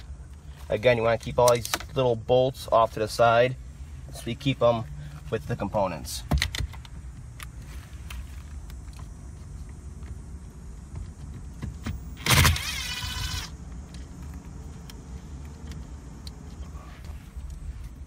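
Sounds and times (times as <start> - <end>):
short mechanical whir: 12.2 - 13.5.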